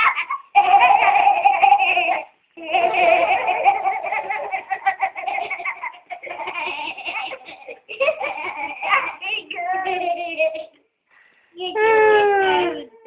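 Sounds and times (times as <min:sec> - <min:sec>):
young children laughing: 0:00.0 - 0:10.8.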